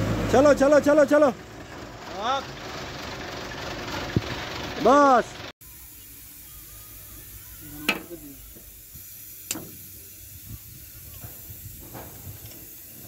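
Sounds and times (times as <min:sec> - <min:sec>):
background hiss: 0:05.6 - 0:13.0.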